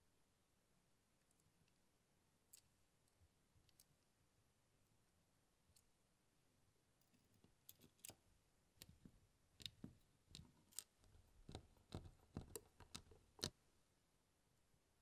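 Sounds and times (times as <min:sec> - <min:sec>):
tweezers clicking on plastic parts: 0:07.4 - 0:08.2, 0:08.8 - 0:13.5.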